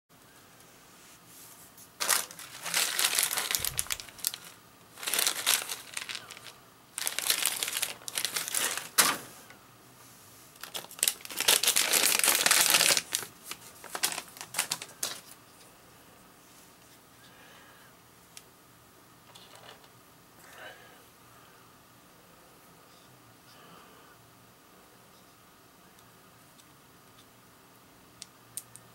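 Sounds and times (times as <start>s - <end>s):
crinkling: 1.9s - 9.2s, 10.6s - 15.7s.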